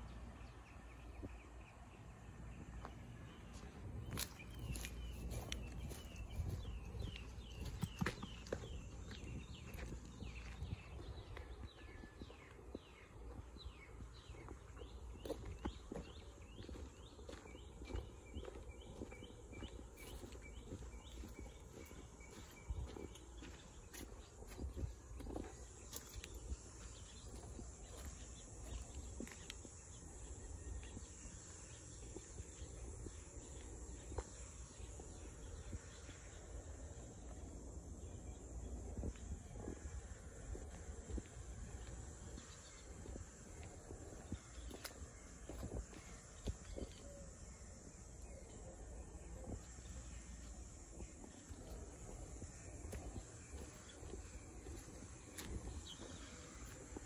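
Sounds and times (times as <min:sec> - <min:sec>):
bird chirping: 0:00.0 - 0:36.6
footsteps on gravel: 0:02.8 - 0:36.3, 0:37.2 - 0:57.0.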